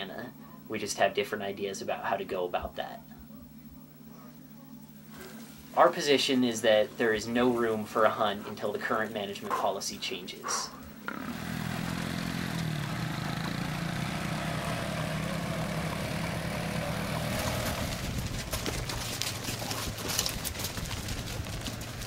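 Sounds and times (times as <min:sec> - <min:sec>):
vehicle engine running: 0:11.0 - 0:22.0.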